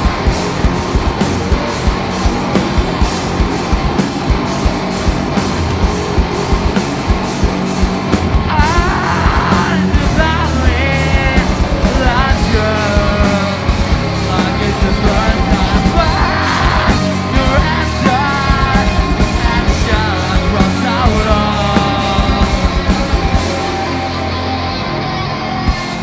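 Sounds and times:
fast driving drum beat: 0.0 - 24.6
electric guitar: 0.0 - 26.0
person singing: 8.3 - 26.0.

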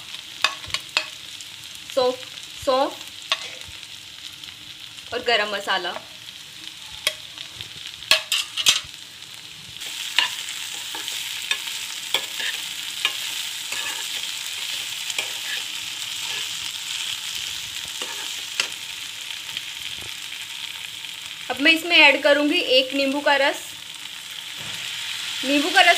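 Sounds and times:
okra sizzling in pan: 0.0 - 25.9
spatula scraping and clicking pan: 0.4 - 1.2, 3.3 - 3.7, 8.1 - 9.0, 9.9 - 16.6, 17.8 - 18.8.

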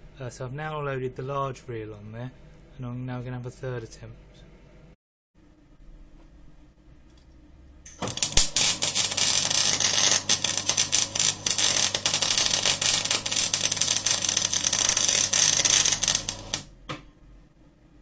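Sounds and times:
welding arc crackling: 7.9 - 16.7.

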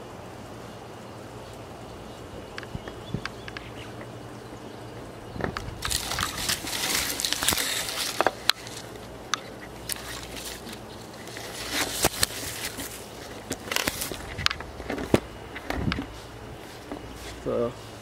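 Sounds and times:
leaves and twigs rustling: 4.9 - 18.0.

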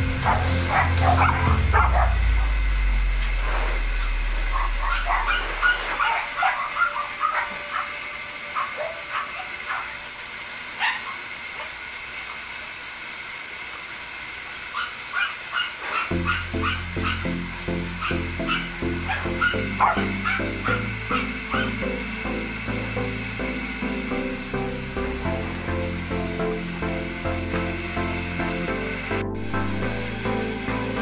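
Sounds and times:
small dogs yipping: 0.2 - 2.2, 4.6 - 10.0, 10.8 - 11.8, 14.7 - 17.2, 18.0 - 21.8.

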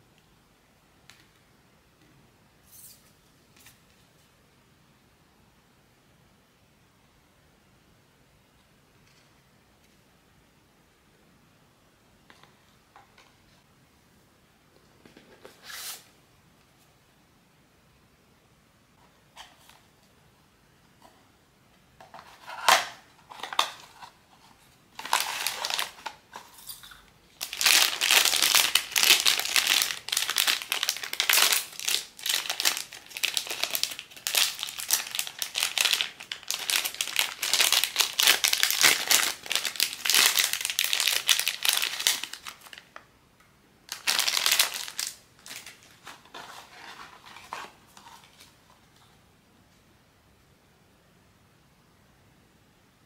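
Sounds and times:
wrapper crinkling: 24.9 - 26.7, 27.4 - 43.0, 43.9 - 48.6.

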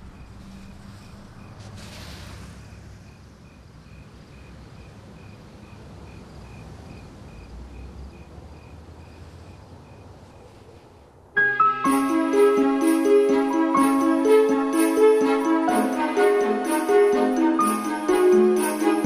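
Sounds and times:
cricket chirping: 2.6 - 10.5.

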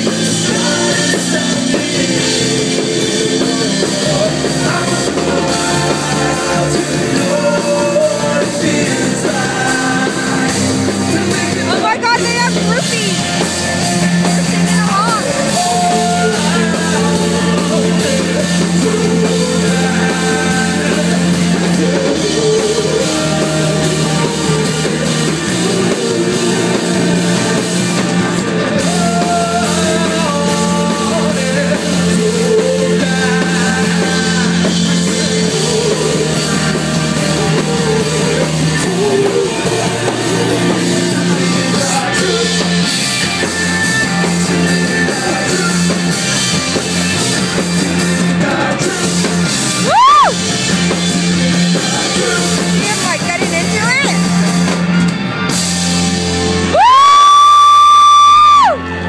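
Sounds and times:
person singing: 0.0 - 13.2, 14.5 - 43.6, 44.2 - 46.6, 47.6 - 50.4, 51.1 - 54.3
drums: 0.0 - 59.0
electric guitars: 0.0 - 59.0.

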